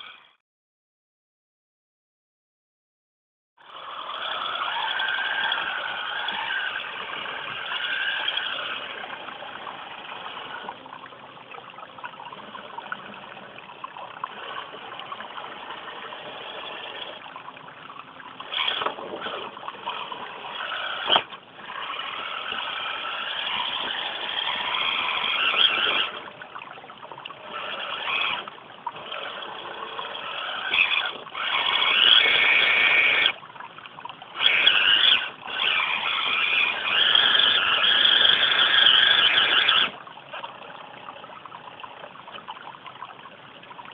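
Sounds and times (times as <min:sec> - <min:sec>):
electric motor whining: 0:18.4 - 0:26.2, 0:27.4 - 0:33.4, 0:34.4 - 0:40.0.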